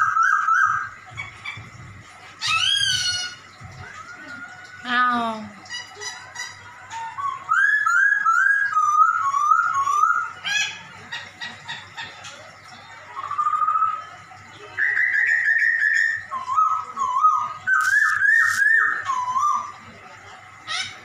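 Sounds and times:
bird singing whistled notes: 0.0s - 1.6s, 6.9s - 10.8s, 14.7s - 19.9s.

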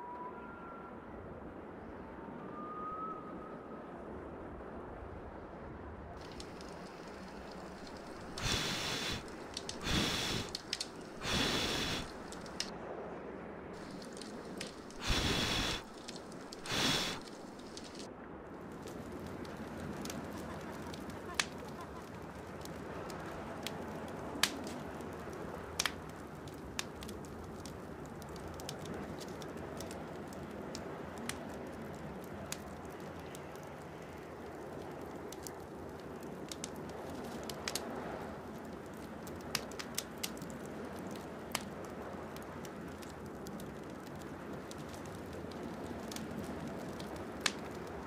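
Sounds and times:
campfire crackling and popping: 6.2s - 12.7s, 13.8s - 48.0s
low rushing background: 6.2s - 12.7s.

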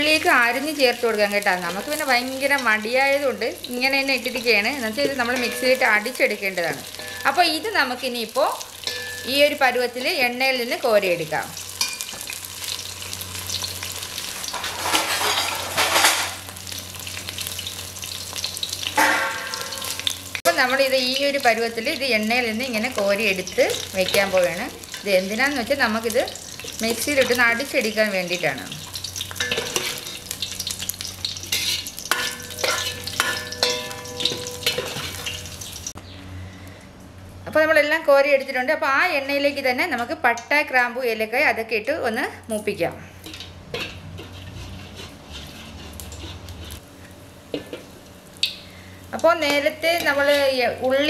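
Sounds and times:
vegetables sizzling in hot oil: 0.0s - 36.0s, 43.2s - 51.0s
steel spoon stirring in pot: 4.2s - 7.5s, 8.8s - 9.5s, 29.0s - 35.7s, 43.2s - 48.5s.

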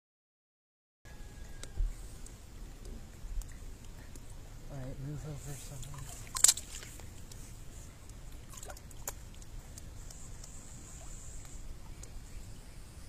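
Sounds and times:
water lapping at pool edge: 2.1s - 12.6s.

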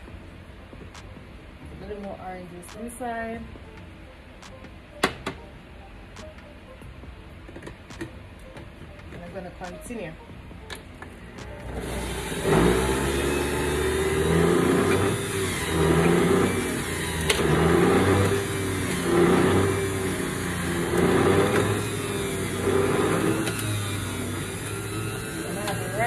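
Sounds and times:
juicer motor running: 11.1s - 26.0s.

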